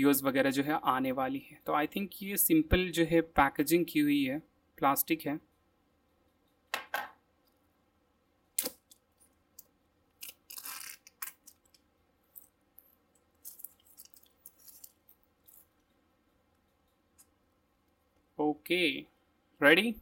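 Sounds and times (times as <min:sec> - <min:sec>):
plastic wrap crinkling: 0:10.1 - 0:12.5, 0:13.3 - 0:15.7
plastic wrap tearing: 0:10.2 - 0:11.8, 0:13.4 - 0:15.2.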